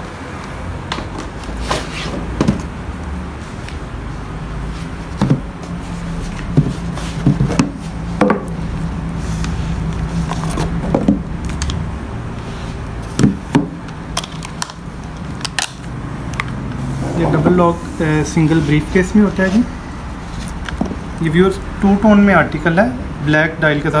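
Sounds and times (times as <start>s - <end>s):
boxes knocking on wooden table: 5.2s - 5.5s
steady low hum: 14.8s - 23.8s.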